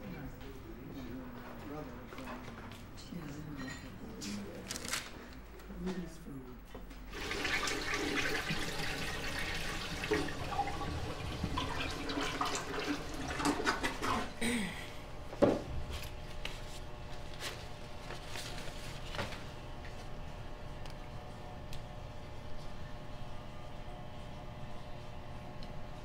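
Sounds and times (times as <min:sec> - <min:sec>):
water running at a sink: 0:07.1 - 0:14.4.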